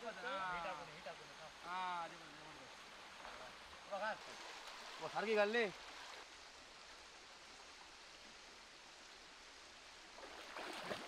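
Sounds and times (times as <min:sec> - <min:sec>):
stream water running: 0:00.0 - 0:11.0
water splashing: 0:10.1 - 0:11.0.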